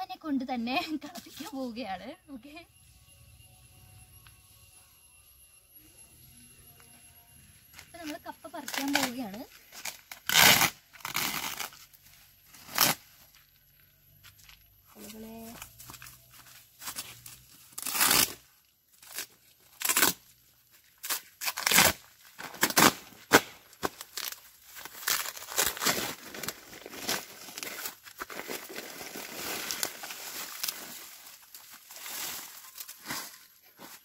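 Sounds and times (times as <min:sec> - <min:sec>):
plastic sack ripping: 0:09.8 - 0:11.8, 0:12.5 - 0:13.1, 0:17.7 - 0:18.4, 0:19.0 - 0:20.2, 0:21.0 - 0:33.2
plastic sack crinkling: 0:21.4 - 0:33.1.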